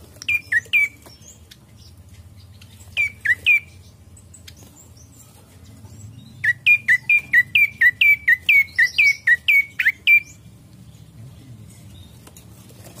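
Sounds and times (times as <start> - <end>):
bird chirping rapidly: 0.2 - 5.2, 5.9 - 10.4.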